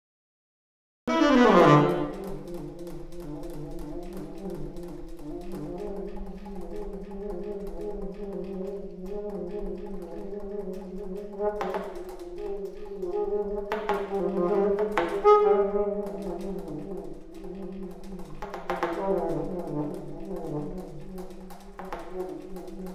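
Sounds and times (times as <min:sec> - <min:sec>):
alto saxophone playing: 0:01.1 - 0:02.9, 0:11.2 - 0:18.2.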